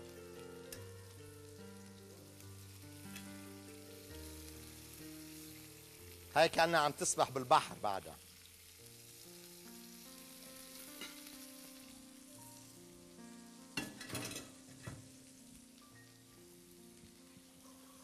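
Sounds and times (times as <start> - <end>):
fish frying in oil: 0.0 - 13.0
utensils clinking on cookware: 13.8 - 15.0.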